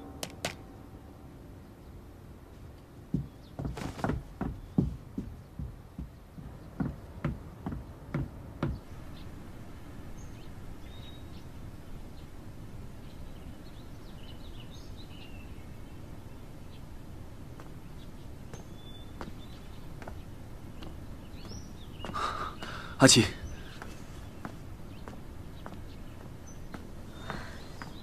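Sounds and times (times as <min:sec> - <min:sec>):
low background rumble: 0:00.0 - 0:28.0
small birds chirping: 0:01.6 - 0:28.0
footsteps on wooden stairs: 0:03.1 - 0:08.9, 0:18.4 - 0:22.9, 0:23.6 - 0:28.0.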